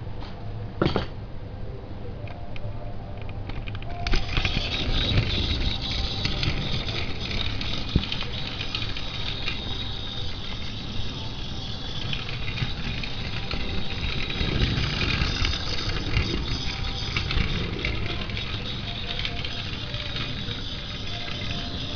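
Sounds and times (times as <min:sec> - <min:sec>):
toy train motor whirring: 0:03.5 - 0:21.9
wheels clattering over track: 0:03.5 - 0:21.9.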